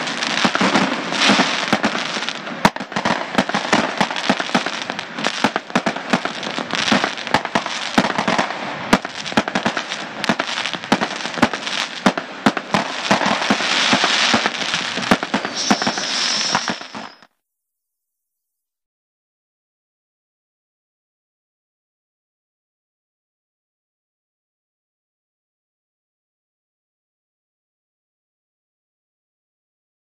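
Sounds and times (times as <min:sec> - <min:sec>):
dense crackling pops: 0:00.0 - 0:17.3
steady hiss: 0:13.5 - 0:17.3
high whistle: 0:15.3 - 0:17.4.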